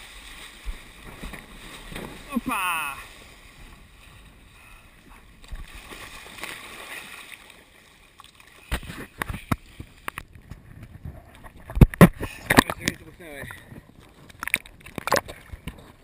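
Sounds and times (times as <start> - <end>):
water splashing and sloshing: 0.0 - 16.0.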